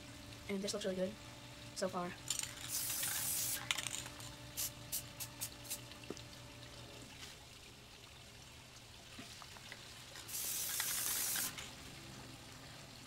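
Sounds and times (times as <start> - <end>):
spray paint can hissing: 2.3 - 5.8, 10.2 - 11.7.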